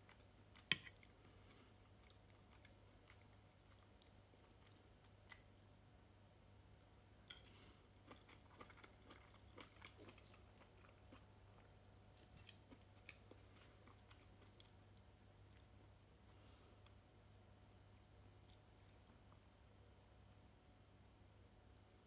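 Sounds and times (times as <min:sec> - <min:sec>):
fork squishing food on plate: 0:00.1 - 0:01.2.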